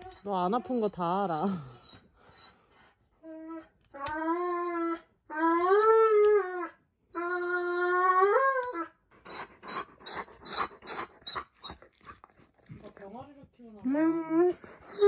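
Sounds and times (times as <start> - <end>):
dog wailing: 3.2 - 12.3
dog panting: 9.1 - 15.0.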